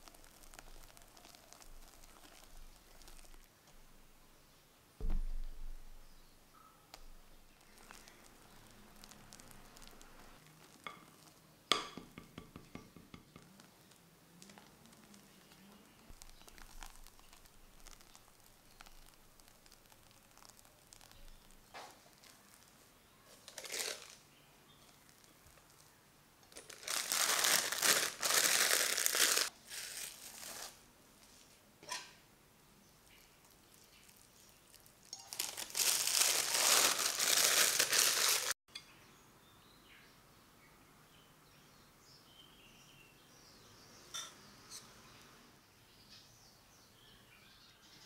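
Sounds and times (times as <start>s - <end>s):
plastic bag crinkling: 0.0s - 3.7s, 7.0s - 11.4s, 13.8s - 24.2s, 26.5s - 30.8s, 33.4s - 38.6s.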